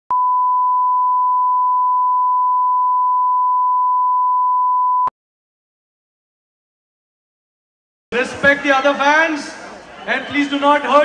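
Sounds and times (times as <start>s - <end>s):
steady test tone beep: 0.1s - 5.1s.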